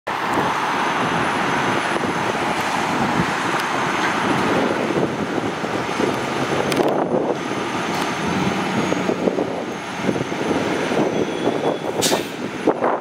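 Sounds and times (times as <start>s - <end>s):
road traffic noise: 0.1s - 13.0s.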